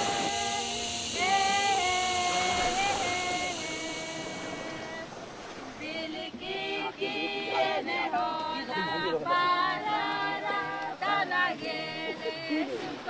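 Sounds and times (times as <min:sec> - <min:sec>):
held tone: 0:00.0 - 0:05.4
choir singing unaccompanied: 0:00.0 - 0:13.0.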